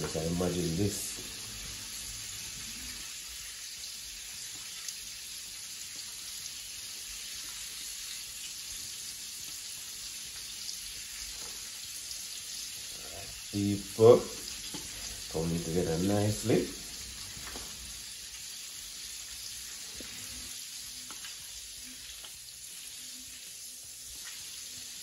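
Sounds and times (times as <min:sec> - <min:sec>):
crayfish sizzling in hot oil: 0:00.0 - 0:25.0.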